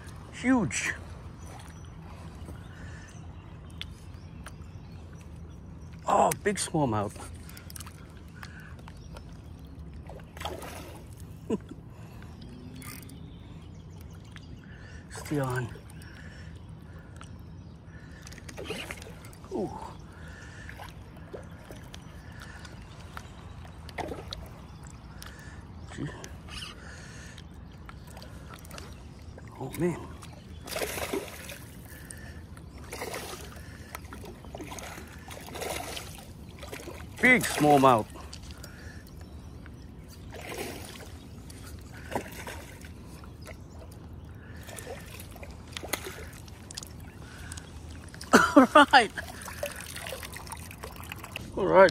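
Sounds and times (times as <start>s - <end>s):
water lapping: 0.0s - 51.9s
water gurgling and splashing: 9.6s - 11.4s, 28.0s - 39.1s, 40.2s - 48.4s, 49.0s - 51.9s
fish splashing at water surface: 49.2s - 51.5s.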